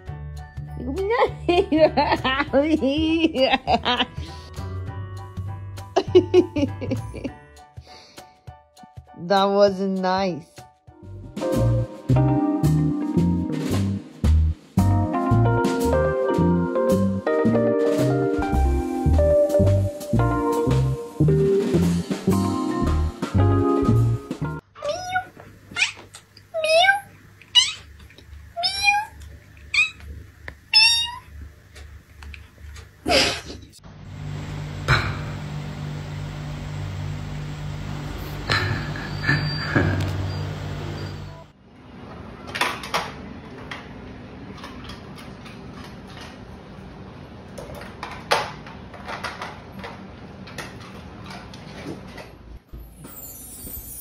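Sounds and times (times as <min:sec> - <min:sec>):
cat meowing: 0:24.8 - 0:26.0, 0:26.6 - 0:27.9, 0:28.6 - 0:30.1, 0:30.7 - 0:31.3.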